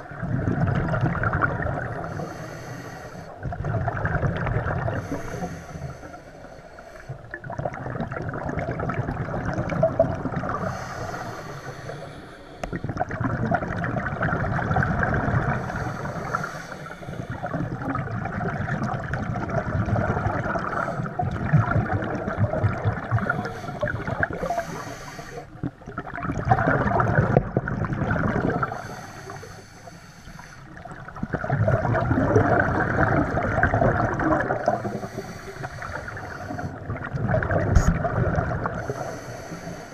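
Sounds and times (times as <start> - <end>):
bubbles gurgling underwater: 0.0 - 2.4, 3.4 - 5.6, 7.2 - 11.6, 12.6 - 29.1, 30.7 - 39.2
regulator hissing inhalations: 2.0 - 3.4, 5.0 - 7.2, 10.7 - 12.8, 15.6 - 17.4, 23.3 - 25.6, 28.7 - 30.8, 34.8 - 36.8, 38.8 - 39.9.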